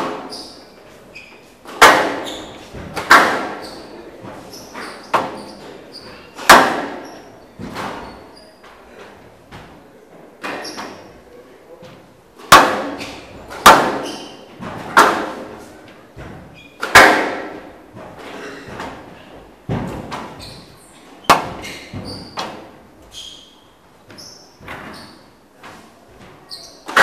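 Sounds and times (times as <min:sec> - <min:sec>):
squash ball hits: 0:00.0 - 0:00.6, 0:01.6 - 0:05.6, 0:06.3 - 0:08.2, 0:12.4 - 0:15.6, 0:16.2 - 0:19.1, 0:19.7 - 0:22.8
shoes squeaking on floor: 0:00.0 - 0:09.6, 0:10.4 - 0:12.1, 0:13.0 - 0:14.9, 0:15.6 - 0:16.9, 0:17.9 - 0:27.0.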